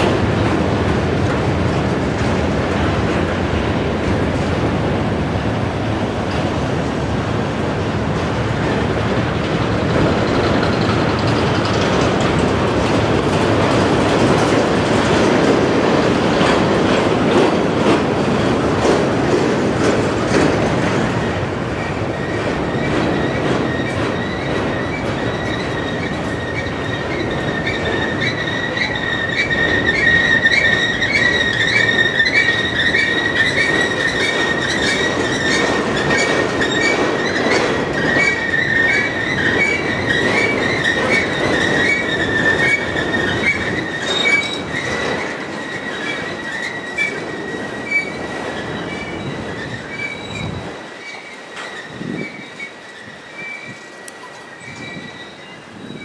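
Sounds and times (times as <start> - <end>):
train wheels clacking: 0.0 - 56.0
high-pitched wheel flange squeal: 22.7 - 56.0.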